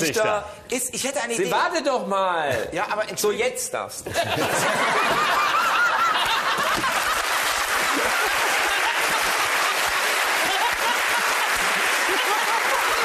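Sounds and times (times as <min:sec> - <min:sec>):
audience laughing loudly: 0:04.1 - 0:13.0.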